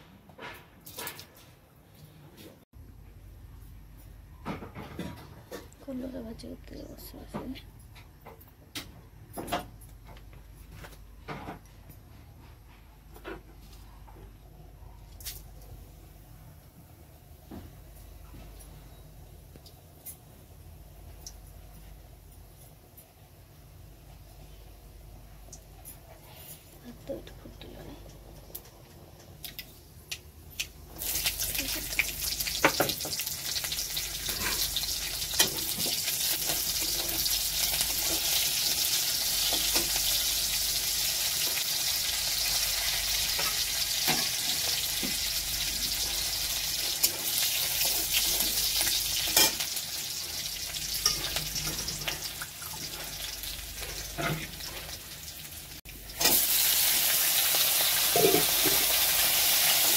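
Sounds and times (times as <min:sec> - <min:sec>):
oil sizzling in a pan: 0:30.9 - 0:59.9.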